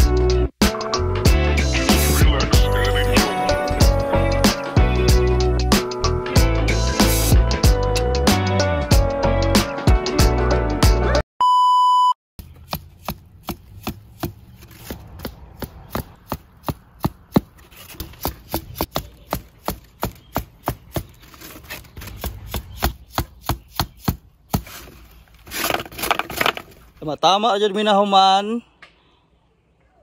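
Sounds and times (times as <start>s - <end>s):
background music: 0.0s - 11.2s
electronic beep: 11.4s - 12.2s
mallet striking tent stakes: 12.4s - 21.1s, 22.1s - 26.6s.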